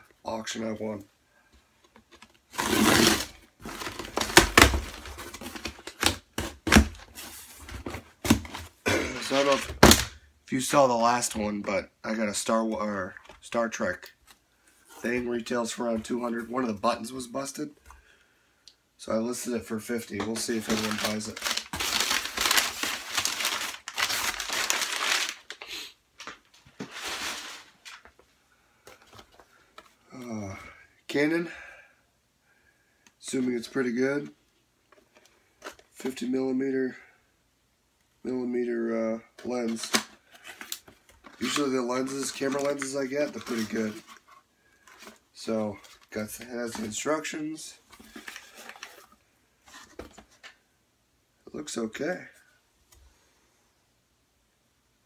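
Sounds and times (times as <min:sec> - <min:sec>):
packing tape tearing: 0:02.5 - 0:07.0, 0:20.6 - 0:25.7
cardboard flaps cracking and rustling: 0:20.3 - 0:25.4.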